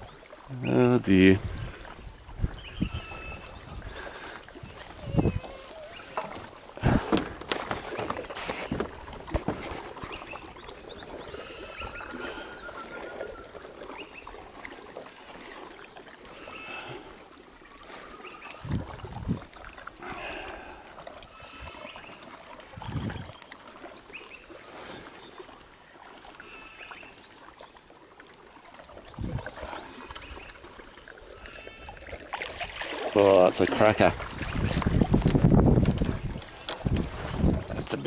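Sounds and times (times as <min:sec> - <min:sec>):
birds calling: 0:00.0 - 0:14.4, 0:15.4 - 0:25.6, 0:29.5 - 0:32.0, 0:36.2 - 0:37.0
water lapping against boat hull: 0:00.0 - 0:38.0.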